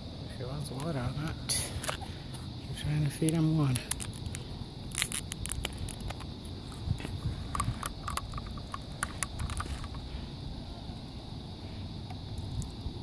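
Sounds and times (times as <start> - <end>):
low outdoor rumble: 0.0 - 13.0
sharp clicks and crackles: 3.2 - 10.0.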